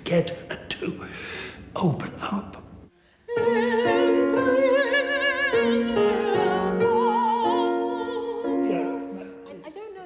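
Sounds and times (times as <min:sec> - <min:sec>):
soprano singing opera: 0:03.2 - 0:09.2.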